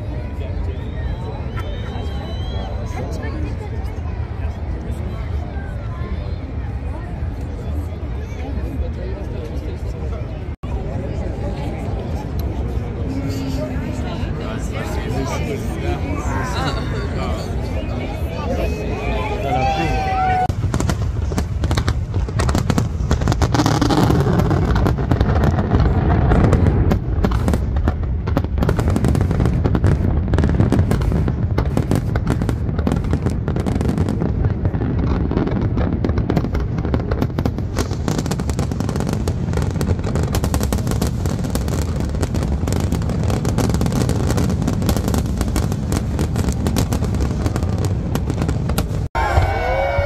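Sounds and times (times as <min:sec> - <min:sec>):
fireworks exploding: 0:11.0 - 0:50.0.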